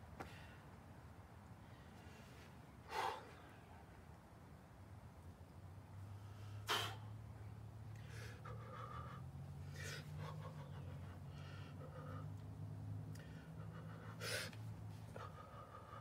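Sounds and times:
man breathing hard: 0.2 - 0.8, 1.7 - 3.6, 6.2 - 7.2, 8.0 - 16.0.

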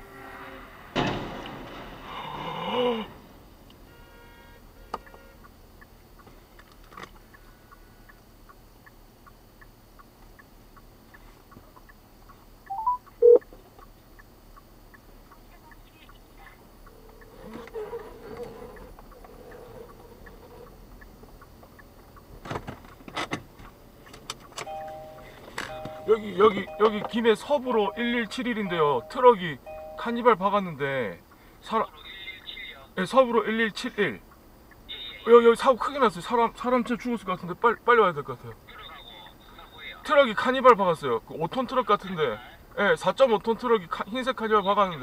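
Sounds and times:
even ticking: 4.6 - 22.4, 23.4 - 31.8, 33.4 - 34.9
low steady cabin hum: 23.4 - 32.9
steady tone: 24.7 - 30.8.

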